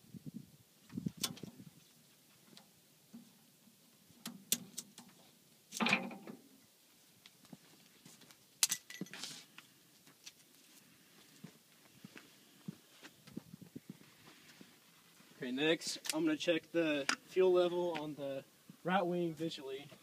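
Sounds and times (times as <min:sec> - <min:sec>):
metal buckle clinks and rattles: 0:08.6 - 0:09.2.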